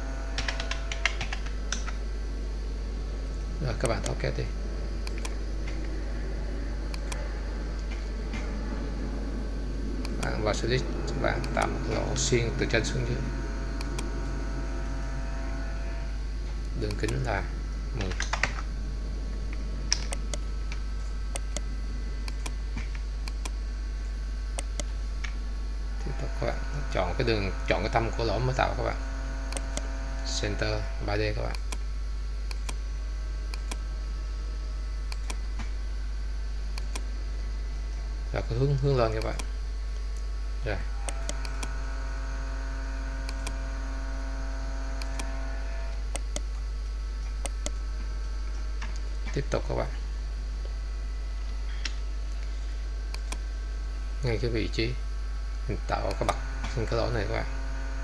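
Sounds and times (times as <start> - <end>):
faint steady tone: 0.0 - 58.0
low electrical hum: 0.0 - 58.0
computer mouse clicks: 0.4 - 2.0, 5.0 - 5.8, 6.9 - 7.2, 22.3 - 23.6, 33.5 - 33.8, 35.1 - 35.4, 36.7 - 37.1, 39.1 - 39.5, 43.2 - 43.6, 45.0 - 45.4, 46.1 - 46.5, 53.1 - 53.4.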